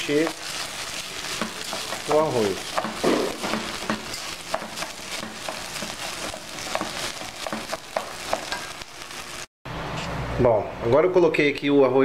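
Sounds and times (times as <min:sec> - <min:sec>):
rice sizzling and crackling: 0:00.0 - 0:09.5.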